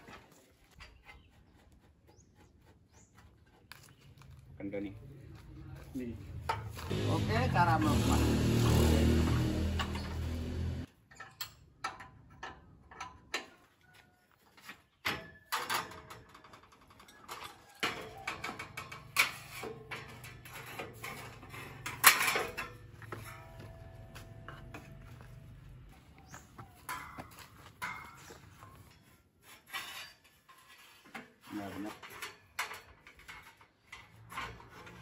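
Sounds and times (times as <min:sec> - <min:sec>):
metallic clanks and rattles: 0:06.4 - 0:13.6, 0:15.0 - 0:25.5, 0:26.7 - 0:35.0.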